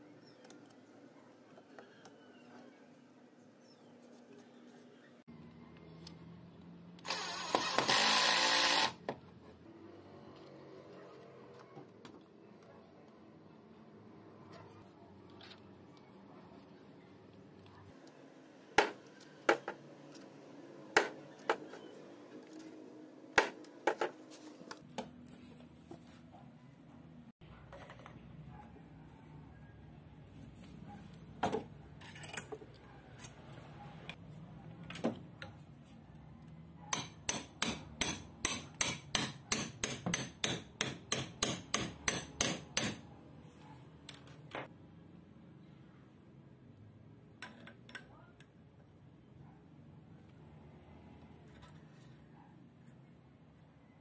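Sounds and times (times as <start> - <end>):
hammer tapping metal tube: 36.9 - 43.0.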